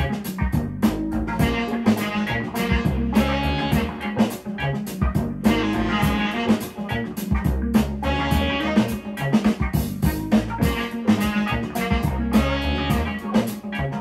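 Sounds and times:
guitar music over speakers: 0.0s - 14.0s.

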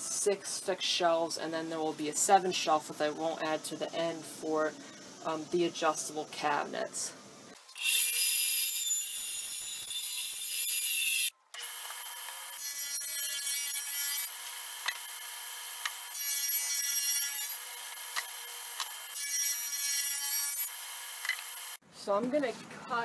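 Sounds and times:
radial arm saw cutting: 7.6s - 21.8s
table saw cutting plywood: 7.8s - 21.8s.

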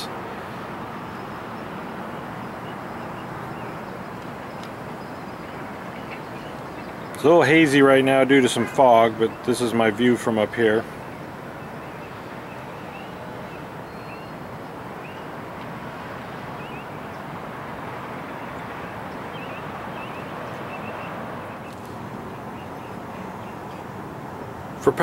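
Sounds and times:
distant traffic hiss: 0.0s - 25.0s
faint bird chirps: 11.6s - 15.4s, 16.6s - 17.2s.

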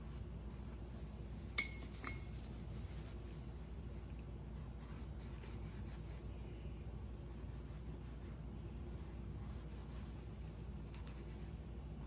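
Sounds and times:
steady low hum: 0.0s - 12.0s
paintbrush scratching on canvas: 4.6s - 6.3s, 7.3s - 11.6s.

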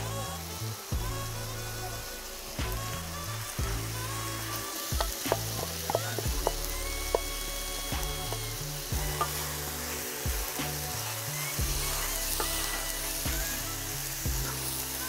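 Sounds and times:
meat sizzling in a wok: 0.0s - 15.0s
utensils clicking against pan: 4.8s - 15.0s.

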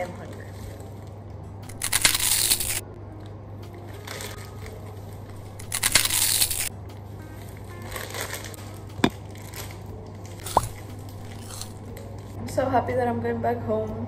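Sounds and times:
plastic snack bag rustling: 1.7s - 2.8s, 4.1s - 6.7s.

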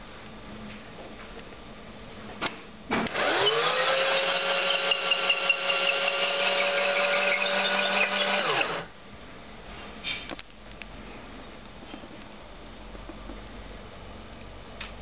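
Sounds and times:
small motor whining: 3.1s - 8.9s.

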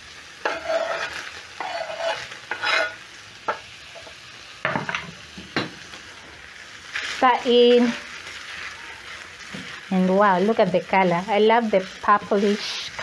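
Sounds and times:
meat sizzling in a pan: 0.0s - 13.0s
scraping on chopping board: 0.4s - 3.0s
board knocking on pan: 4.6s - 5.8s.

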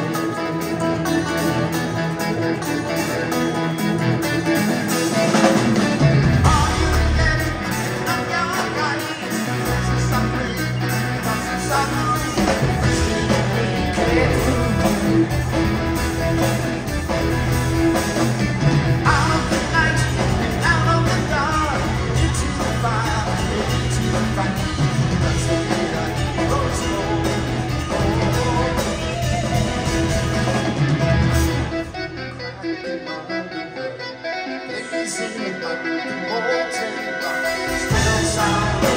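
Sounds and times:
live rock band playing: 0.0s - 38.9s
lead vocal singing: 6.2s - 16.8s, 19.0s - 30.6s, 32.9s - 38.9s.

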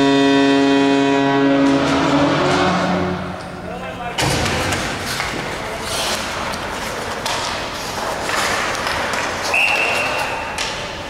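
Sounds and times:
skates scraping ice: 4.6s - 11.0s.

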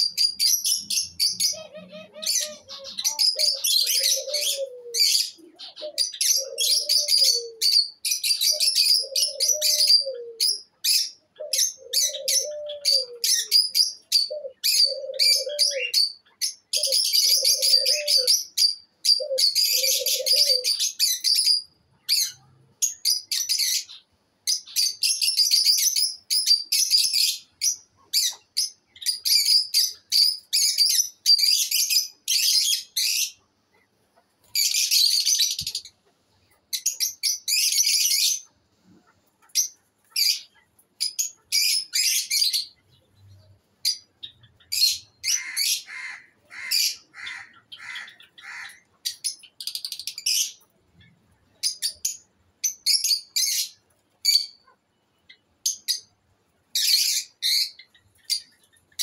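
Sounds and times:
lovebirds chattering: 0.0s - 59.0s
low coos: 1.5s - 5.2s.

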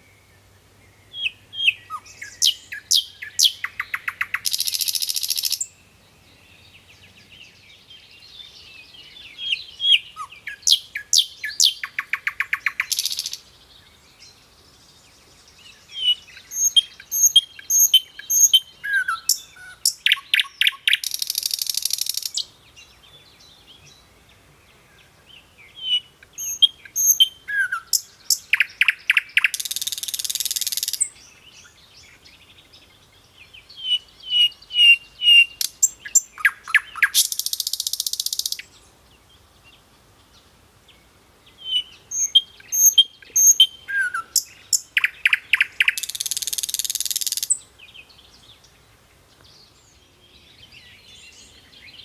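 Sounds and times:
bird chirps and trills: 1.0s - 5.8s, 7.5s - 13.5s, 15.7s - 23.0s, 25.7s - 32.5s, 33.2s - 38.9s, 41.5s - 48.8s.

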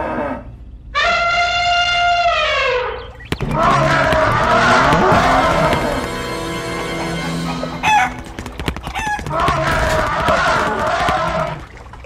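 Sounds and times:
low steady animal call: 0.0s - 9.4s
rooster crowing: 3.5s - 11.6s.

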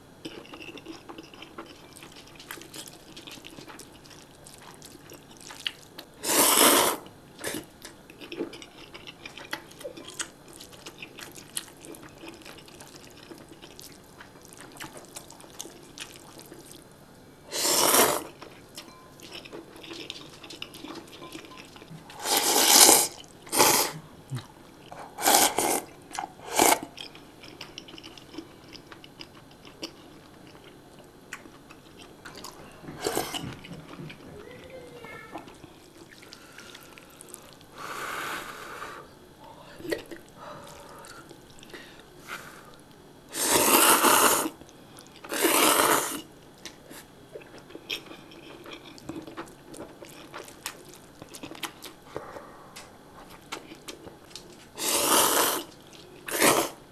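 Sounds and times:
quiet chewing: 0.2s - 6.1s, 7.4s - 16.9s, 18.2s - 37.8s, 39.4s - 43.0s, 44.5s - 56.8s
wet slurps of noodles: 6.2s - 7.0s, 17.5s - 18.3s, 22.2s - 24.0s, 25.2s - 25.9s, 43.3s - 44.5s, 45.3s - 46.2s, 54.8s - 55.7s, 56.3s - 56.8s.

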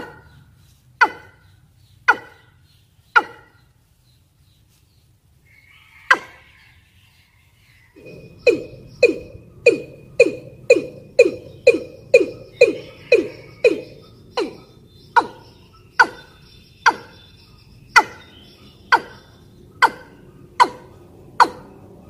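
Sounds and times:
bird calling sharp notes: 1.0s - 3.8s, 7.9s - 21.9s.

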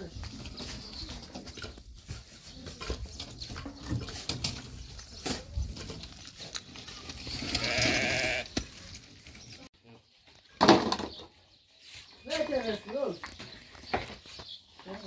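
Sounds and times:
knocks and clatter: 10.6s - 11.3s.

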